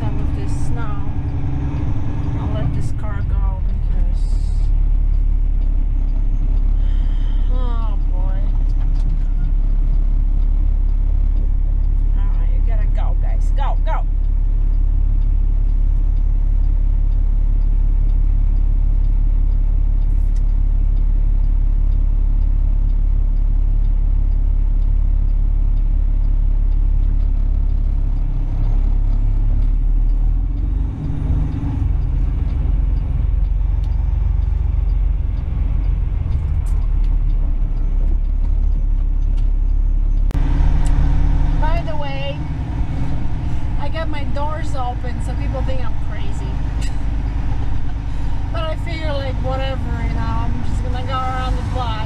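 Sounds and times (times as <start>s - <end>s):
truck diesel engine idling: 0.0s - 52.0s.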